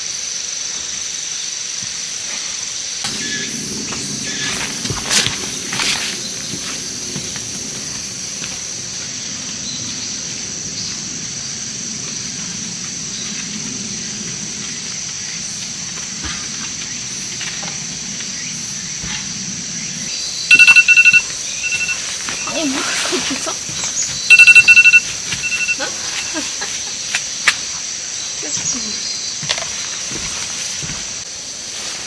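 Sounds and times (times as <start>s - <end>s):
insects chirping: 0.0s - 32.0s
electronic alarm beeping: 20.5s - 22.0s, 24.3s - 25.8s.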